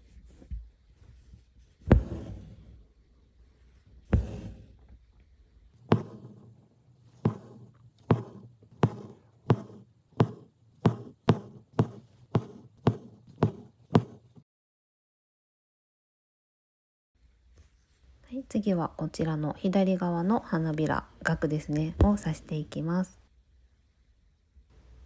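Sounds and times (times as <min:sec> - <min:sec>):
needle and thread through fabric: 0:00.0 - 0:02.8, 0:03.7 - 0:05.0, 0:05.8 - 0:14.4.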